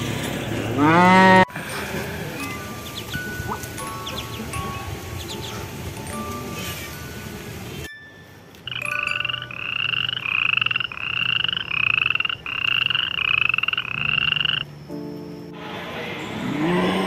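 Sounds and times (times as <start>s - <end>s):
frog calling in pulsed calls: 8.7s - 14.7s.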